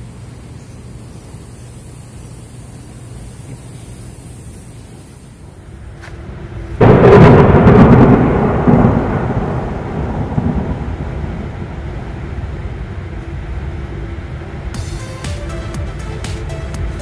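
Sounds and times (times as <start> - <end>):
thunderclap crack and rumble: 6.8 - 13.1.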